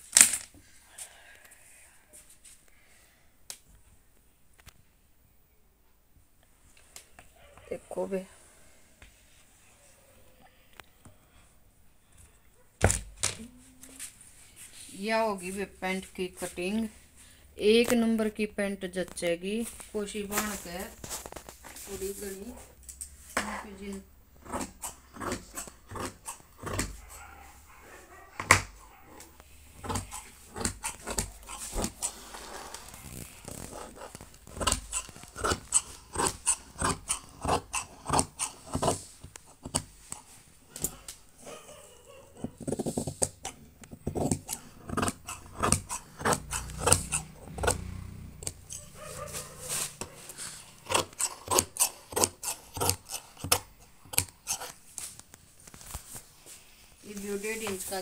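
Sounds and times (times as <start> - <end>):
scissors snipping cloth: 29.8 - 32.2, 33.0 - 41.0, 42.6 - 47.8, 50.8 - 55.0.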